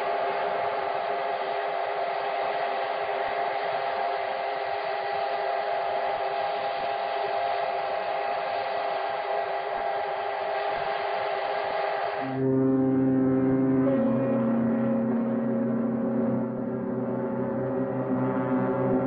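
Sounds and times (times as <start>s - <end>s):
sirens and horns droning: 0.0s - 19.0s.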